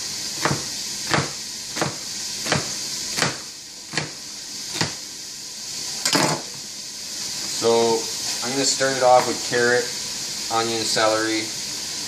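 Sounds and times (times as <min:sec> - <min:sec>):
steady hiss: 0:00.0 - 0:12.0
knife chopping on wooden board: 0:00.4 - 0:05.0.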